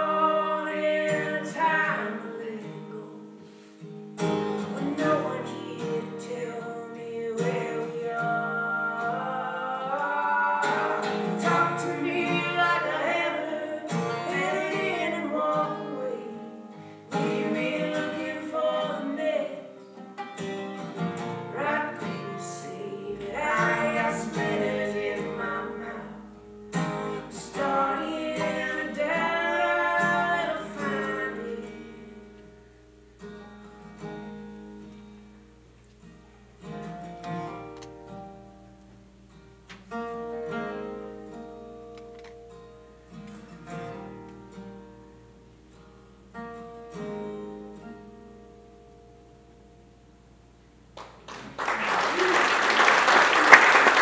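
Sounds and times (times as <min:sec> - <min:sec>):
man and woman singing: 0:00.0 - 0:03.4, 0:04.6 - 0:19.8, 0:21.4 - 0:32.5
acoustic guitars: 0:00.0 - 0:54.0.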